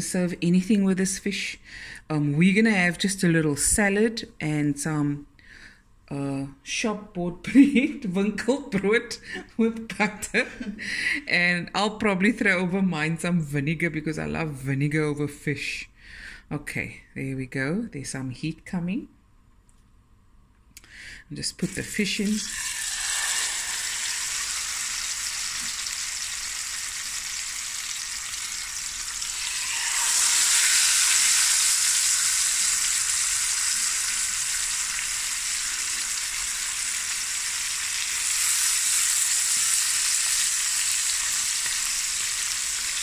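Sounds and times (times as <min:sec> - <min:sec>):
fish sizzling in a pan: 0:22.4 - 0:43.0.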